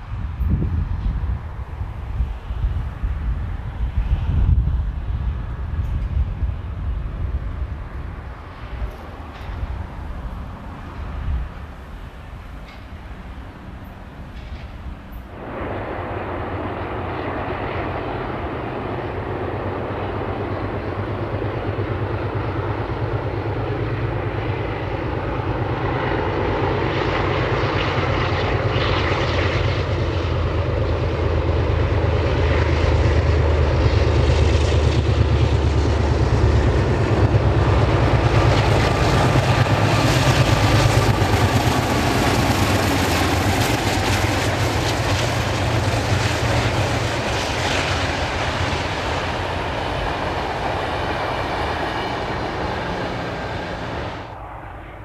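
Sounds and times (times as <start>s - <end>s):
diesel locomotive engine drone: 0.0s - 55.0s.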